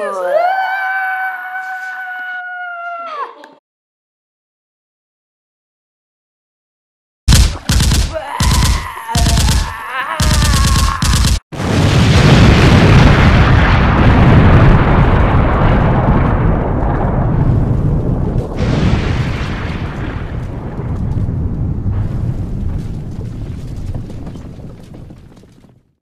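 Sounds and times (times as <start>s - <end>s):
smaller explosion blast: 7.3s - 25.5s
explosion blast with rumble: 7.3s - 25.9s.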